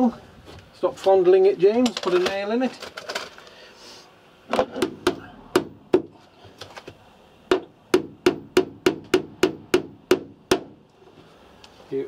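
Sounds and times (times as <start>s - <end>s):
hammer tapping a nail into wood: 4.8s - 6.1s, 7.5s - 10.8s.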